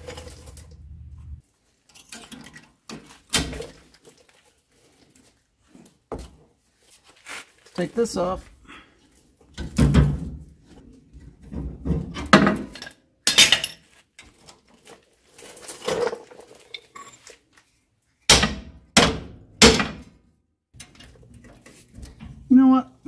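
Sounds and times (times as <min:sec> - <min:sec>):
metal tools clanking: 0:12.6 - 0:13.9.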